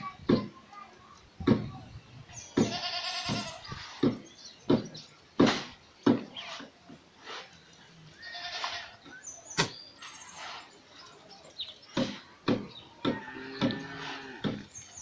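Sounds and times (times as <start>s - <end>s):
goat bleating: 2.6s - 3.6s, 8.2s - 9.0s
shovels scraping sand and gravel: 3.1s - 4.0s, 5.5s - 7.7s, 8.3s - 9.0s, 9.6s - 12.3s, 13.4s - 15.0s.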